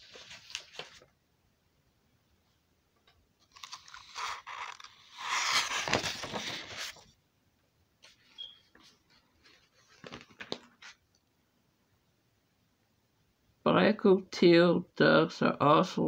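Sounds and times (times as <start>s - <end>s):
paper rustling: 0.0s - 1.1s, 3.4s - 7.1s, 8.0s - 11.0s.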